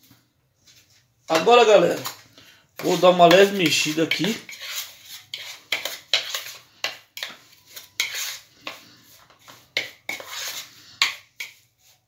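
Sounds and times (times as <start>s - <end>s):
metal utensil scraping a bowl: 2.8s - 12.0s.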